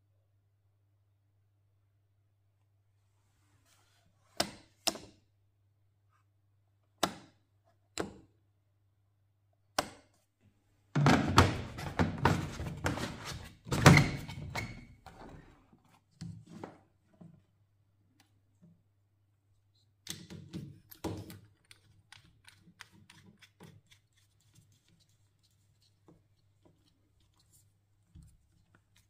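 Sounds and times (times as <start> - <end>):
plastic parts knocking: 11.0 - 14.6.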